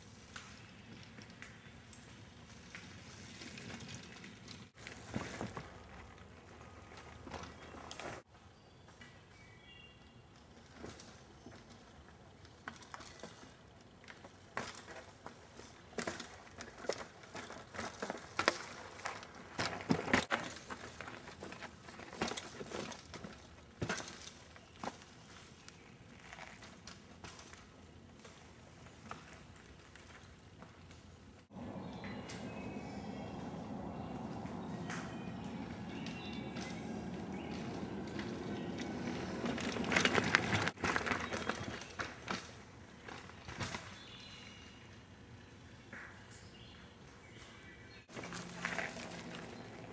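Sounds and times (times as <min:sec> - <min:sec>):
bike clattering over rough ground: 0:10.5 - 0:44.2, 0:48.1 - 0:49.9.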